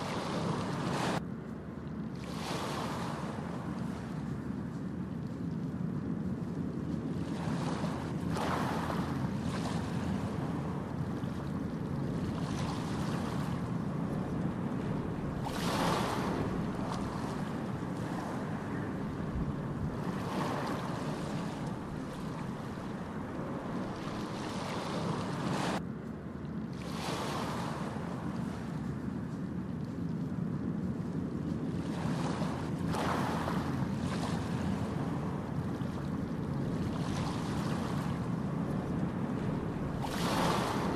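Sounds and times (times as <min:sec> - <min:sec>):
ocean waves breaking on beach: 0:00.0 - 0:01.2, 0:02.0 - 0:25.8, 0:26.6 - 0:40.9.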